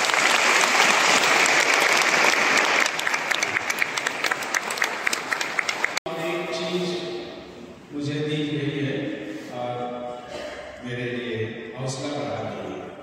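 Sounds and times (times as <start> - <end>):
congregation applauding: 0.0 - 6.0.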